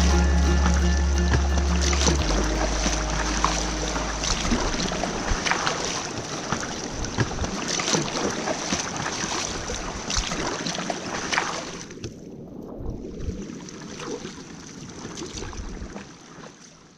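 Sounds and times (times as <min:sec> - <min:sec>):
paddle splashing in water: 0:00.0 - 0:12.1.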